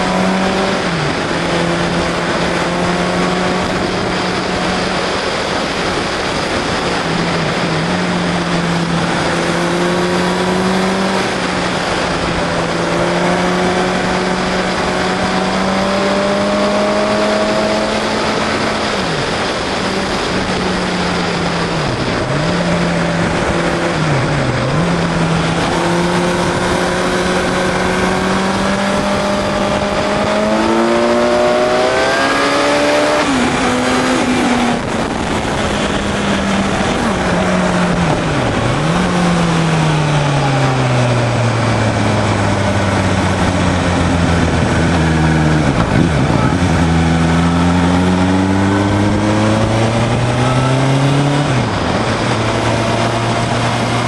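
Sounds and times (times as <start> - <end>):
wind noise: 0.0 - 54.0
vehicle engine running: 33.2 - 54.0.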